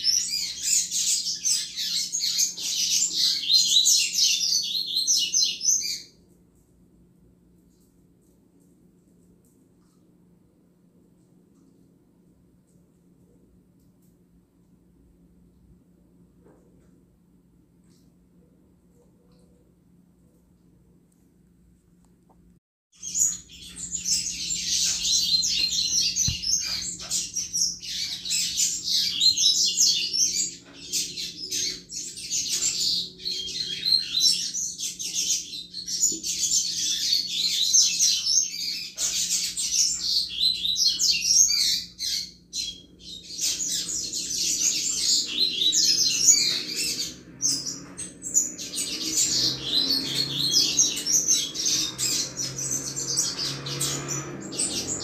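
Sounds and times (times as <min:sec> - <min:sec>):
bird twittering song: 0:00.0 - 0:06.2, 0:23.0 - 0:55.0.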